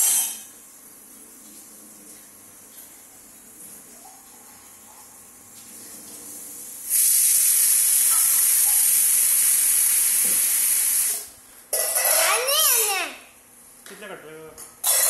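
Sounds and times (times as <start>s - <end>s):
pressure cooker steam hissing: 6.8s - 11.3s.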